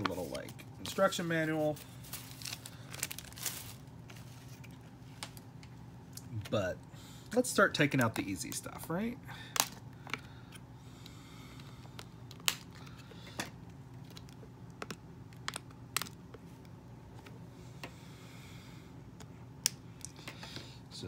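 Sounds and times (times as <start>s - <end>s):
plastic wrap crinkling: 0.0s - 5.4s.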